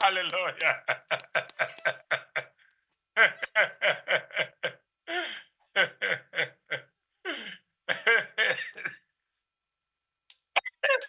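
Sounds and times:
man laughing: 0:00.4 - 0:02.6, 0:03.2 - 0:09.0.

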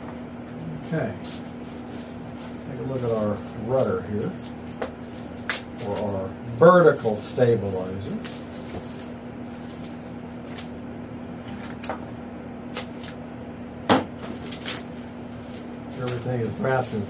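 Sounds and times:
foam packing sheet rustling: 0:00.9 - 0:06.2, 0:06.8 - 0:10.8, 0:14.2 - 0:17.0.

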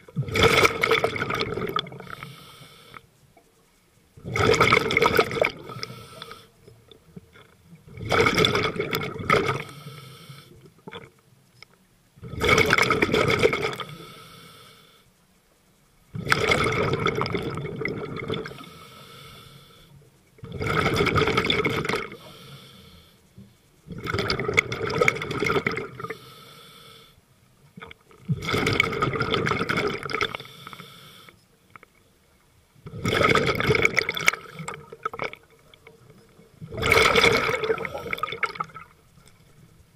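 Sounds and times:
diver exhaling bubbles underwater: 0:00.1 - 0:02.1, 0:04.2 - 0:05.9, 0:07.9 - 0:09.7, 0:12.2 - 0:13.9, 0:16.2 - 0:18.7, 0:20.4 - 0:22.2, 0:23.9 - 0:26.1, 0:27.8 - 0:30.4, 0:32.8 - 0:35.5, 0:36.6 - 0:39.0.

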